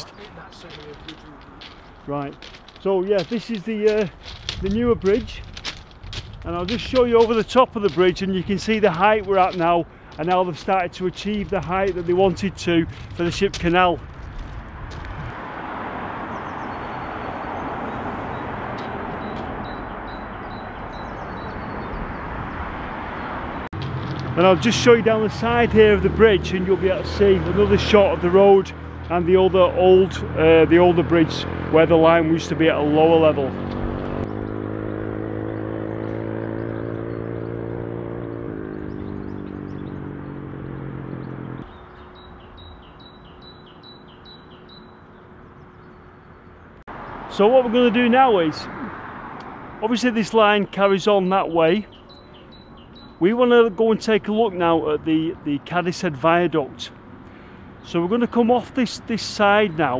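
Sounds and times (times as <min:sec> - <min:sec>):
bird chirping: 0:00.0 - 0:02.2, 0:16.1 - 0:23.7, 0:33.7 - 0:47.7, 0:49.8 - 0:55.7, 0:56.8 - 0:59.9
engine hum: 0:00.0 - 0:59.9
road traffic rushing: 0:00.0 - 0:59.9.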